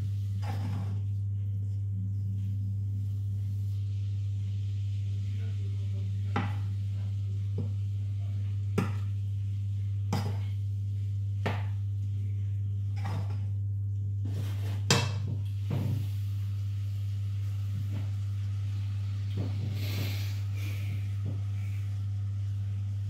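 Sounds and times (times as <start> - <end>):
steady low hum: 0.0 - 23.0
wooden spoon scraping a pan: 0.3 - 1.1, 14.2 - 14.9.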